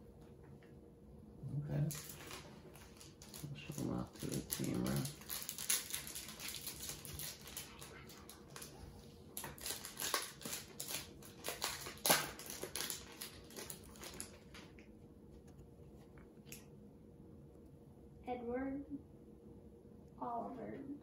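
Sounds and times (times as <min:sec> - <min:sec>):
foil wrappers crinkling: 0:01.8 - 0:14.9.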